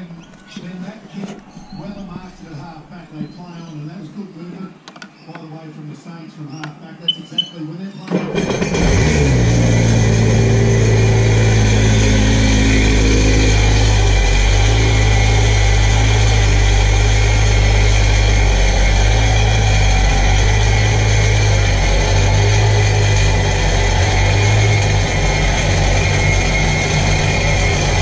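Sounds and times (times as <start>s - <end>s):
jet ski engine idling: 8.1s - 28.0s.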